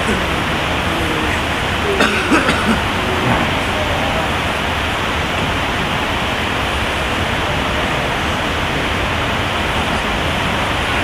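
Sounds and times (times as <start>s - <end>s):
hiss-like rushing noise: 0.0s - 11.0s.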